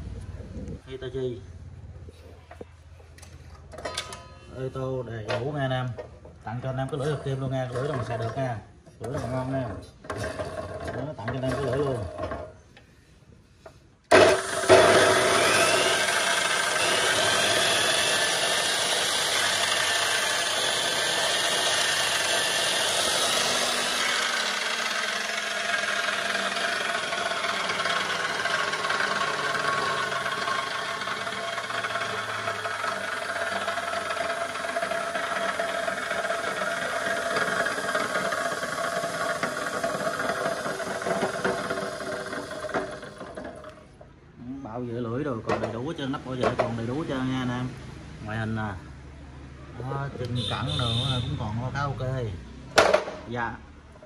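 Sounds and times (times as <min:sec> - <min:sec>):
cut-off saw motor whining: 0:14.1 - 0:43.7, 0:50.4 - 0:51.2.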